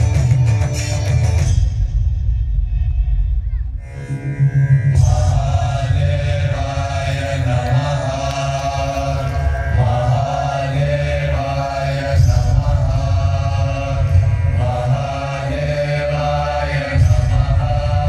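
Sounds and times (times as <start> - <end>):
music with deep bass drone: 0.0 - 18.0
chanted vocals: 4.8 - 18.0.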